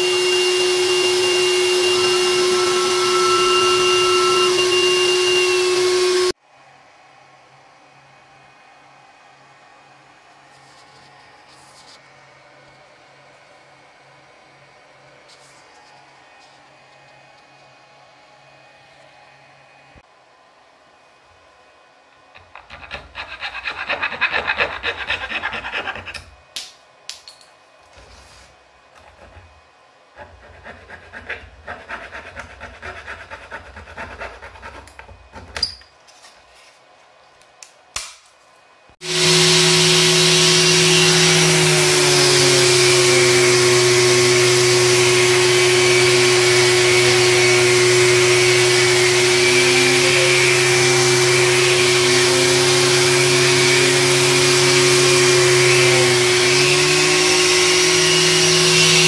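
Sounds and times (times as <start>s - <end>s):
random orbit sander running: 0.0s - 6.4s, 39.0s - 59.0s
hand saw rasping through wood: 22.4s - 26.3s, 30.2s - 35.5s, 40.7s - 59.0s.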